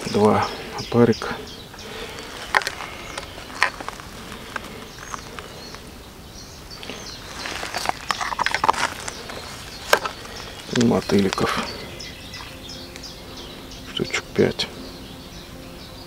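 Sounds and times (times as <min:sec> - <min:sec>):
faint bird chirps: 0:00.0 - 0:16.0
open-air background noise: 0:00.0 - 0:16.0
hands handling fishing tackle: 0:02.2 - 0:05.8, 0:06.9 - 0:11.7.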